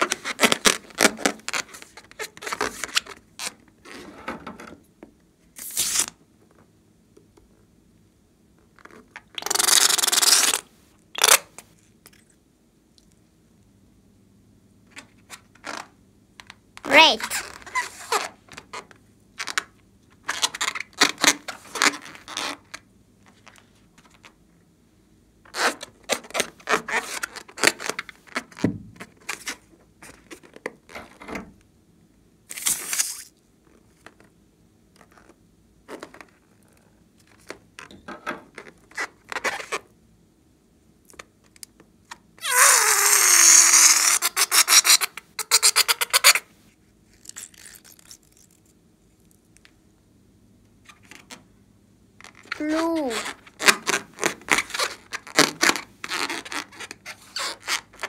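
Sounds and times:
rubber balloon squeaks: 0.0s - 4.1s, 8.8s - 10.6s, 16.9s - 19.5s, 20.3s - 22.8s, 25.5s - 29.7s, 38.6s - 39.9s, 42.4s - 46.4s, 52.2s - 58.0s.

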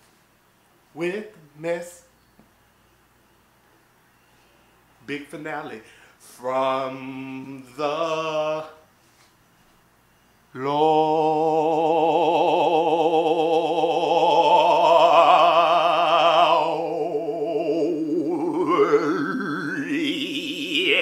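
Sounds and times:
man singing a held note: 10.6s - 21.0s.

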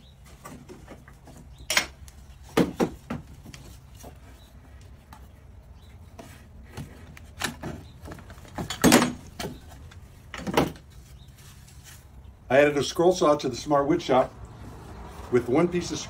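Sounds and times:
tools thumping on wooden workbench: 1.7s - 3.3s.

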